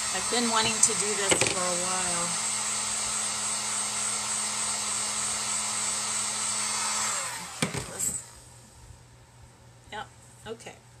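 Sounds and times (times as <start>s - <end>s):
heat gun blowing: 0.0s - 8.6s.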